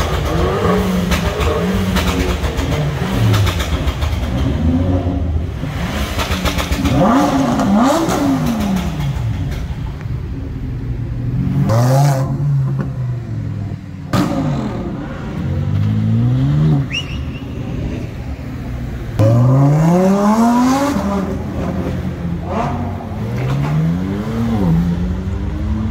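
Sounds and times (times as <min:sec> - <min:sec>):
car exhausts revving: 0:00.0 - 0:10.2.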